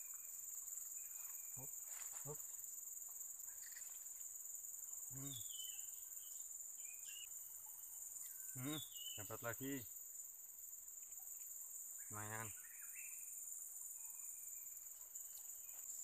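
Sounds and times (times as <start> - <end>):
insect chorus: 0.0 - 16.0
person murmuring: 5.1 - 5.5, 8.6 - 9.7.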